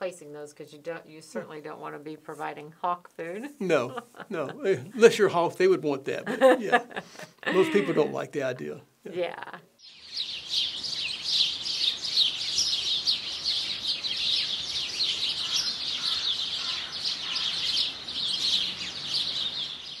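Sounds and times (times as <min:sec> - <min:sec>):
songbirds chirping: 0:09.8 - 0:20.0.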